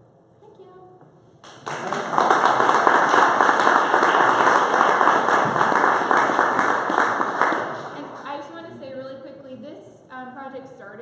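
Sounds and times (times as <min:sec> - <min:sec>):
audience applauding: 0:01.4 - 0:08.4.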